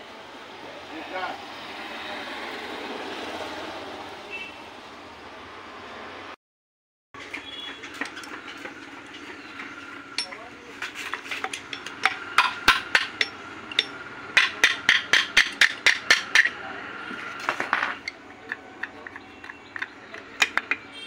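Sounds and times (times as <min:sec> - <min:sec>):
sharp metallic taps: 0:07.6 - 0:16.6, 0:17.6 - 0:21.0
metal engine parts clinking: 0:10.1 - 0:16.6, 0:17.2 - 0:21.0.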